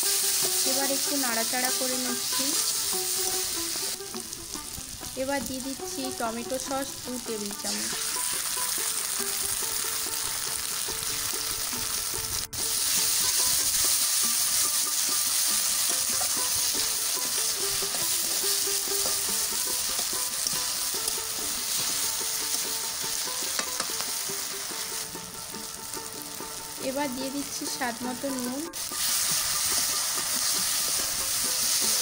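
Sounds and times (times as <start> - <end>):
vegetables sizzling in hot oil: 0.0 - 32.0
spatula stirring in a pan: 12.6 - 25.8, 28.8 - 32.0.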